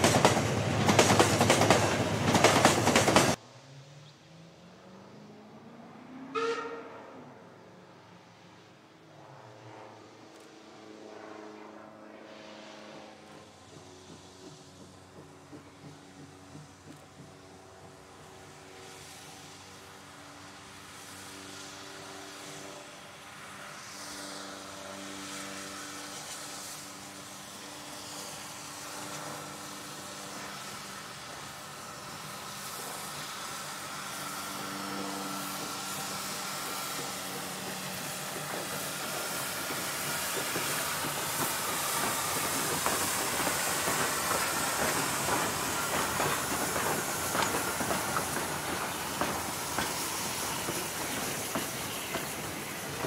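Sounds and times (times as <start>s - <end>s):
steam locomotive hissing: 0.0s - 3.4s, 13.4s - 53.0s
wheels clattering over rail joints: 35.2s - 53.0s.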